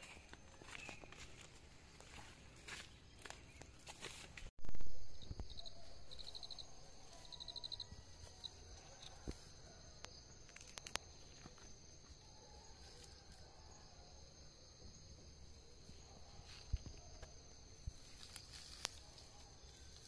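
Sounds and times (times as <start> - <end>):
leaves rustling and clicking: 10.5 - 11.6, 17.9 - 20.0.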